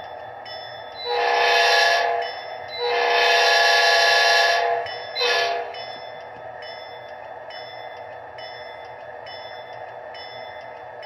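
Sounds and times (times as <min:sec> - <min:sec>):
model train horn blasts: 0:01.0 - 0:05.8.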